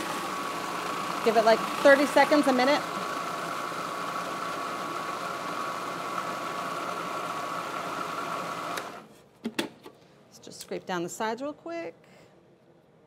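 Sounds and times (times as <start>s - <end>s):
food processor motor whining: 0.0s - 9.0s.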